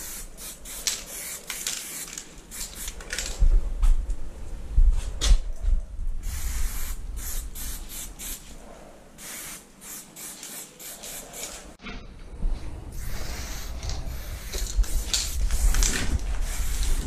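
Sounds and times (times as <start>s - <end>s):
aerosol spray can hissing: 0.0s - 3.0s, 6.2s - 8.5s, 9.2s - 11.7s, 13.0s - 17.0s.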